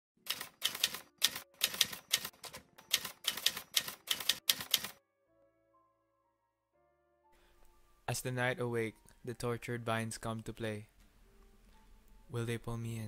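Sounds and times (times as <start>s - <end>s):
typewriter keys clacking: 0.2s - 5.0s
soft sustained music notes: 5.2s - 13.0s.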